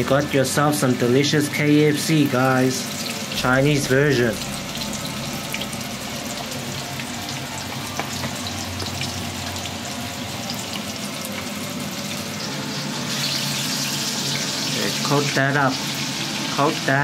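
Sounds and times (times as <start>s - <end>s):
chicken wings deep-frying in oil: 0.0s - 17.0s.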